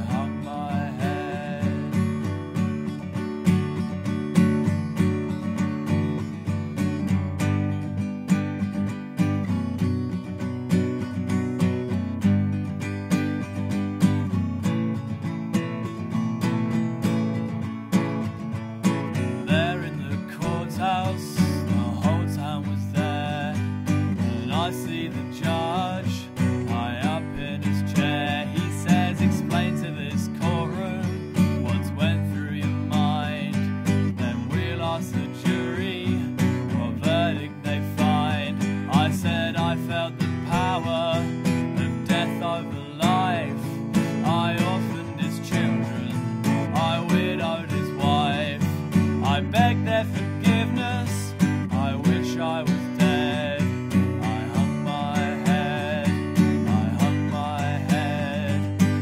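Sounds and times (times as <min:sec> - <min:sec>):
man singing: 0:00.0 - 0:02.9, 0:18.8 - 0:59.0
acoustic guitar strumming: 0:00.0 - 0:59.0.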